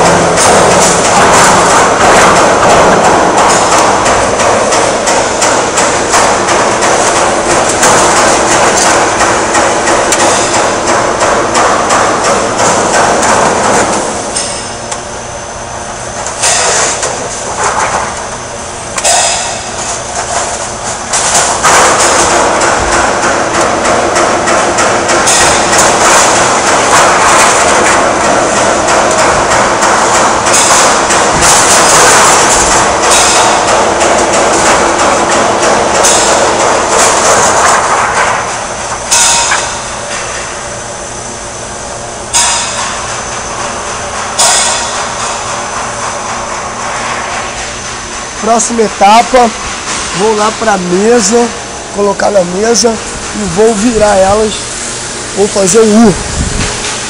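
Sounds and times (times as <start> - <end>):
metallic clattering and banging: 0.0 - 14.8, 19.0 - 40.6, 42.3 - 51.5.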